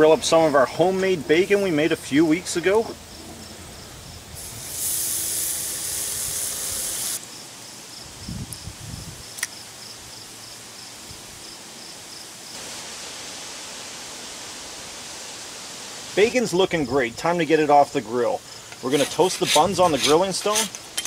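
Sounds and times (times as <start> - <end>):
bacon sizzling: 4.4 - 7.2.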